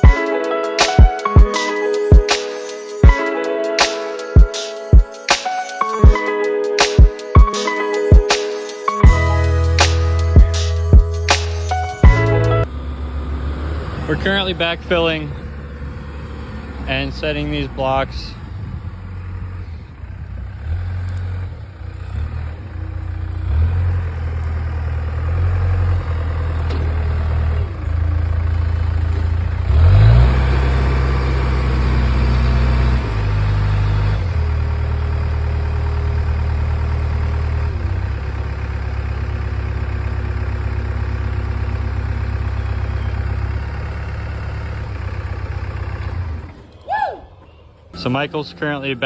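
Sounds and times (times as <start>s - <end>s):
diesel engine running under load: 9.0s - 46.8s, 47.9s - 49.0s.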